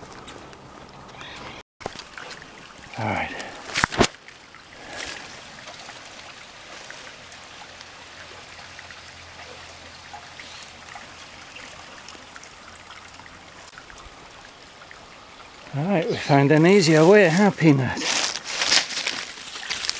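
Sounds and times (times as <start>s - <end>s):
creek trickling: 0.0s - 19.9s.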